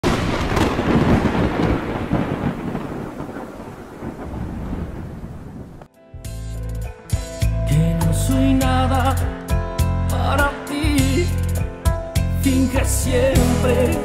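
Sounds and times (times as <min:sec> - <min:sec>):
deep rolling thunder rumble: 0:00.0 - 0:05.9
music with deep bass: 0:06.0 - 0:14.0.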